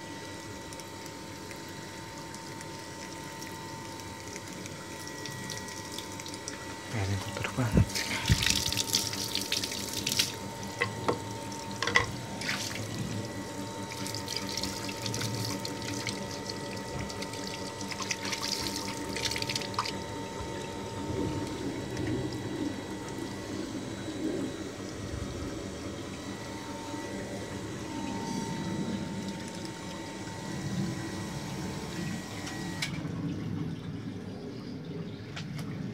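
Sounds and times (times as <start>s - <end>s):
steady hum: 0.0s - 35.9s
water running across tiled floor: 7.4s - 10.9s, 12.4s - 20.6s.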